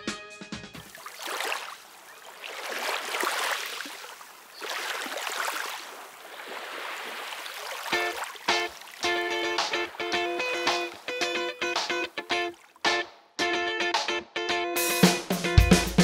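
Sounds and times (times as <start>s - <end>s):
water sloshing in slow swells: 0.8s - 9.1s
music notes: 8.0s - 16.0s.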